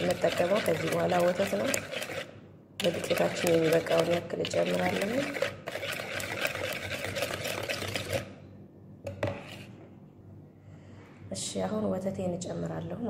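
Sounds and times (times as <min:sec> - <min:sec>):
whisk beating batter in a bowl: 0:00.0 - 0:08.4.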